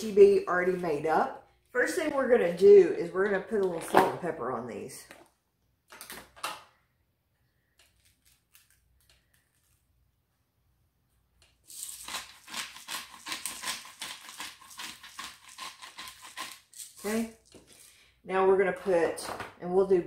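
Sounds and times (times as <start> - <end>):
pepper grinder grinding: 11.7 - 17.9.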